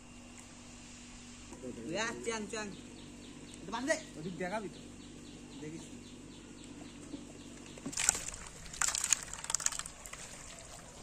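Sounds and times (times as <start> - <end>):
faint steady hum: 0.0 - 11.0
wet mud squelching: 7.8 - 11.0.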